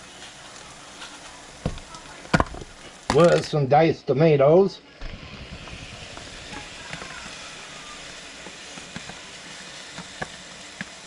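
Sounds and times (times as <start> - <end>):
sauce sizzling in a pot: 0.0 - 11.0
small pops and ticks: 8.7 - 9.2, 9.9 - 11.0.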